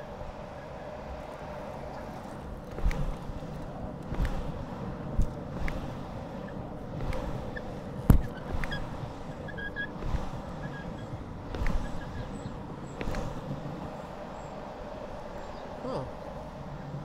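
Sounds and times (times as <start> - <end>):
longboard wheels rumbling on asphalt: 0.0 - 17.0.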